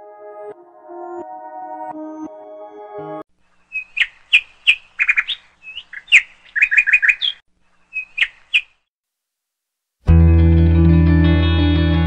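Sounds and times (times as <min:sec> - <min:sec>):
songbird chirping: 0:03.4 - 0:08.9.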